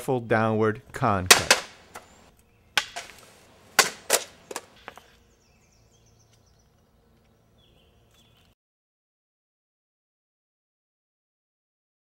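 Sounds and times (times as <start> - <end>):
sword striking bamboo pole: 1.3 - 2.1, 2.8 - 3.2, 3.8 - 4.7.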